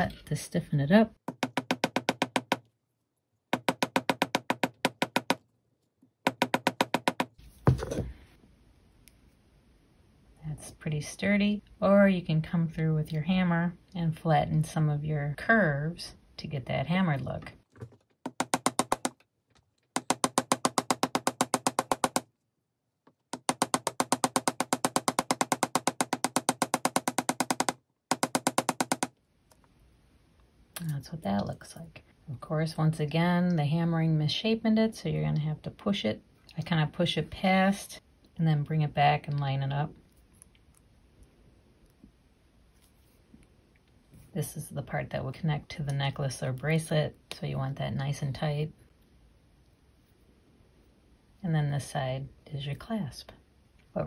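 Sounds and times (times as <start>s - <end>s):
hammer tapping wire on steel: 23.3s - 29.1s.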